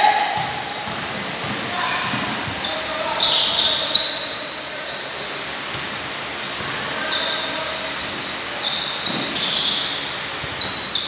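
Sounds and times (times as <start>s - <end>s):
sneakers squeaking: 0.0s - 11.0s
basketball bouncing: 0.2s - 2.6s.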